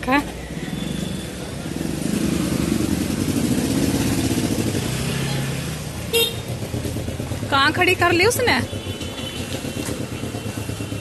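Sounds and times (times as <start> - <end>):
vehicle engine passing: 0.0 - 8.4.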